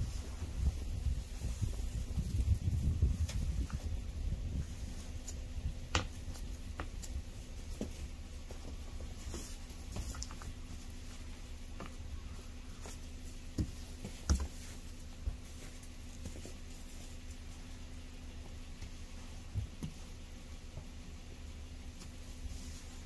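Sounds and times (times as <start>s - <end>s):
snow brush scraping car: 22.0s - 23.0s.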